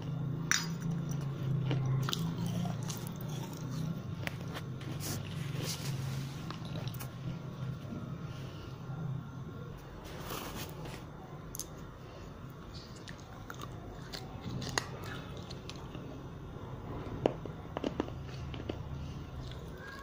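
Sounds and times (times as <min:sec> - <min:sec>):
biting and crunching baked clay: 0:00.0 - 0:07.5, 0:12.6 - 0:20.0.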